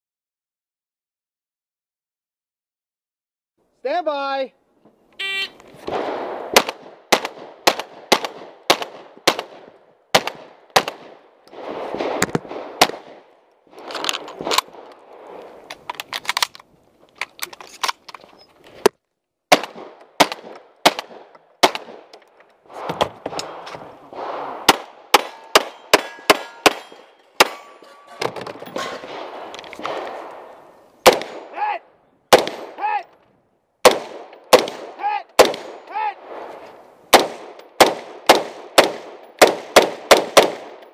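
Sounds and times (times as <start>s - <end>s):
rifle shots: 5.3s - 15.4s, 19.5s - 22.1s, 22.7s - 27.8s, 28.8s - 31.6s, 32.3s - 32.8s, 33.8s - 40.9s
handgun shots: 24.7s - 27.7s.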